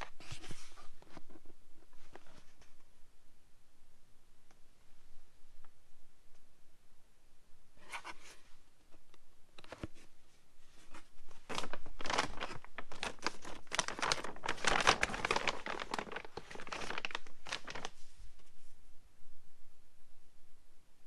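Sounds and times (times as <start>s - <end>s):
plastic bag crinkling: 11.3s - 18.0s.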